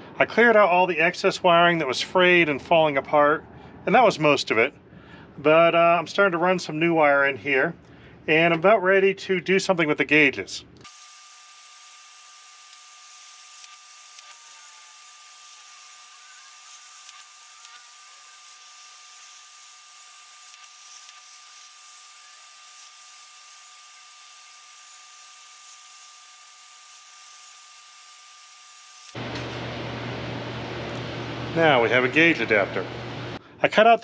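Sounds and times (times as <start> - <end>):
plasma cutter hissing: 10.8 - 29.2.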